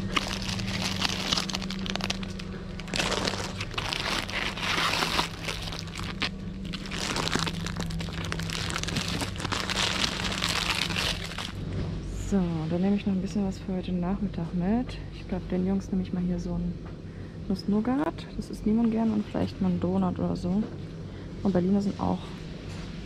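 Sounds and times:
packaging crinkling: 0:00.0 - 0:11.6
steady low hum: 0:00.0 - 0:23.0.

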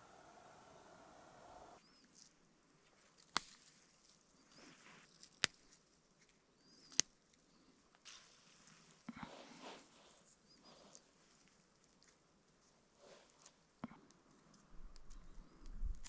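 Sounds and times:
rustling of needles: 0:01.9 - 0:16.0
twigs snapping: 0:03.0 - 0:04.3, 0:05.0 - 0:07.4, 0:13.4 - 0:16.0.

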